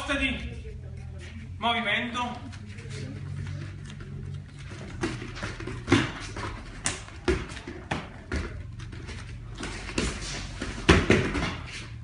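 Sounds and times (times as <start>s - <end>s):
bare feet striking foam mats: 4.6s - 12.0s
punches and kicks landing: 10.8s - 11.7s.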